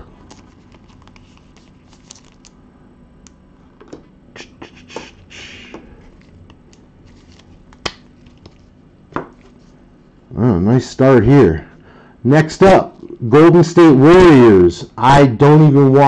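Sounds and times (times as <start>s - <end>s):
plastic sleeve rustling: 0.0s - 2.6s, 7.0s - 8.8s.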